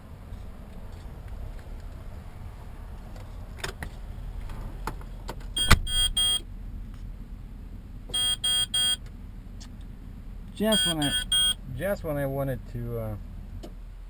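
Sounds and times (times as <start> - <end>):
diesel engine idling: 0.0 - 14.0
electronic warning chime beeping: 5.6 - 6.4, 8.2 - 9.0, 10.7 - 11.6.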